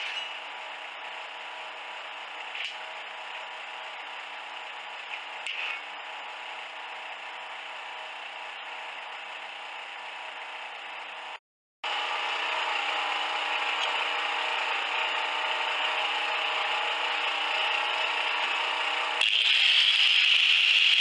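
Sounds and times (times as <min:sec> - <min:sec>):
grinder grinding metal: 0:00.0 - 0:00.5, 0:04.0 - 0:06.0, 0:11.9 - 0:21.0
angle grinder whining: 0:11.9 - 0:21.0.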